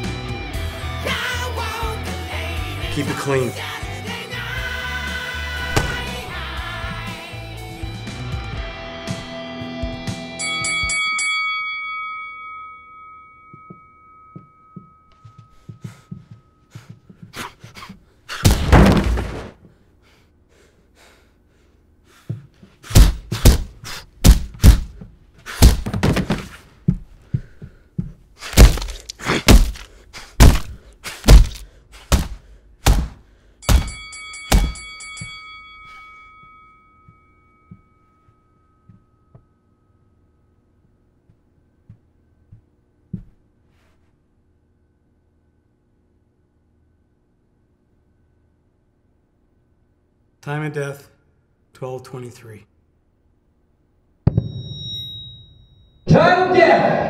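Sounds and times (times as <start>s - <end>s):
heavy punch thuds: 5.6s - 6.3s, 22.9s - 25.0s, 25.6s - 26.5s, 28.6s - 29.8s, 30.4s - 34.8s
boxing ring bell: 10.4s - 16.7s, 33.6s - 40.6s, 54.3s - 56.2s.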